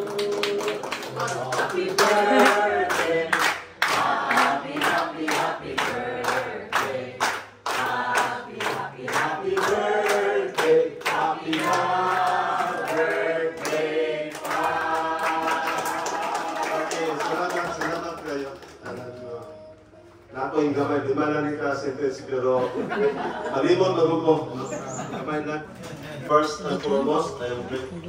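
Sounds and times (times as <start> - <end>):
group singing birthday song: 0.0 - 17.8, 18.8 - 28.0
people clapping in time: 0.0 - 19.9.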